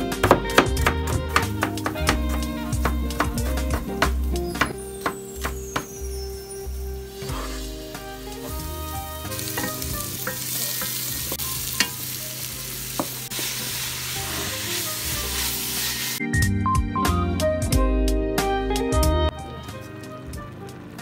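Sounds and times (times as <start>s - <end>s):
background music with a beat: 0.0s - 11.9s, 16.2s - 21.0s
wooden spatula knocking pot: 0.2s - 6.0s, 9.4s - 11.9s
vegetables sizzling in oil: 1.5s - 16.2s.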